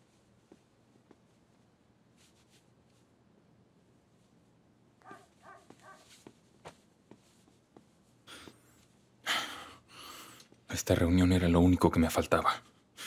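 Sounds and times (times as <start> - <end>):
shirt rustling: 0.0 - 3.1, 5.1 - 8.2.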